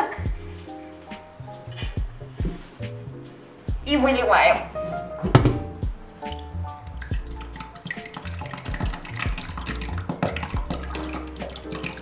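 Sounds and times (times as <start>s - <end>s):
soft background music: 0.0s - 12.0s
thick milk pouring and splashing: 6.3s - 12.0s.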